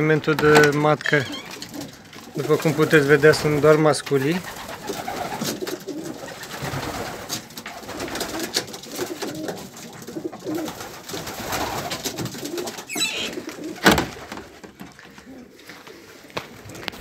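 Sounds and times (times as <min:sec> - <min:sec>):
pigeons cooing: 0:04.2 - 0:14.0, 0:15.1 - 0:16.8.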